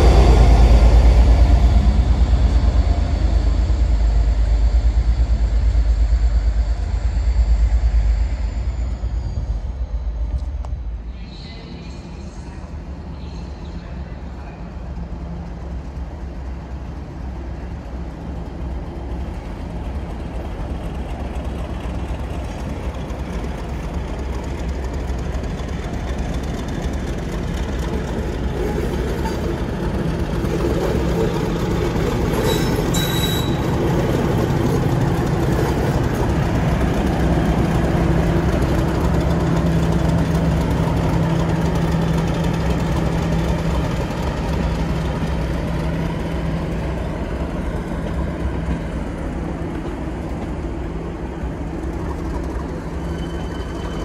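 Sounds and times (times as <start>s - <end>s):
diesel locomotive engine drone: 0.0s - 54.0s
wheel squeal: 30.4s - 36.3s, 52.8s - 54.0s.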